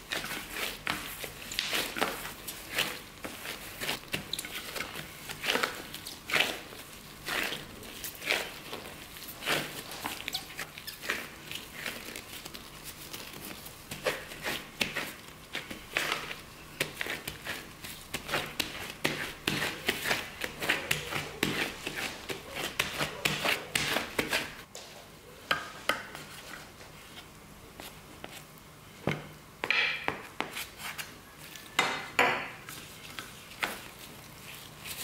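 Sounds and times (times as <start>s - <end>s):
disposable gloves crinkling: 0.0s - 24.3s, 32.7s - 35.0s
hands kneading dough: 0.0s - 35.0s.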